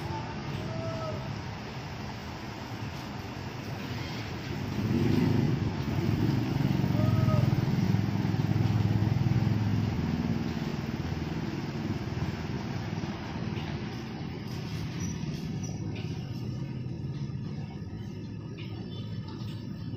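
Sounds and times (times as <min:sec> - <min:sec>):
rain hiss: 0:00.0 - 0:16.6
wet traffic: 0:00.0 - 0:19.9
motorcycles riding past: 0:03.7 - 0:18.5.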